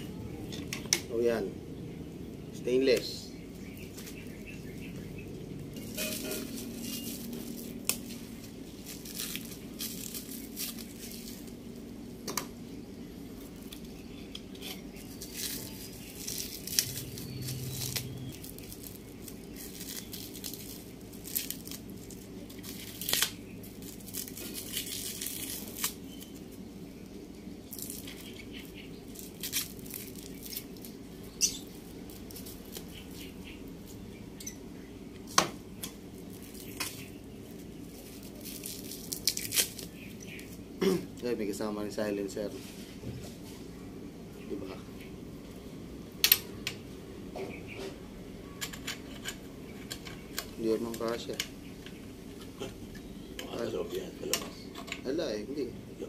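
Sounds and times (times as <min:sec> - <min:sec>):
plastic wrapping tearing and crinkling: 0:05.8 - 0:11.8, 0:14.9 - 0:26.6, 0:27.7 - 0:31.0, 0:31.7 - 0:33.9, 0:36.2 - 0:40.5.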